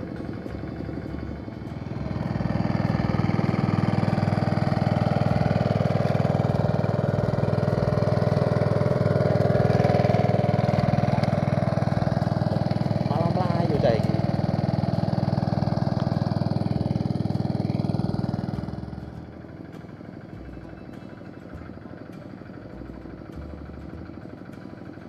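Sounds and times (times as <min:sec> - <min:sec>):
small petrol engine running: 0:00.0 - 0:25.0.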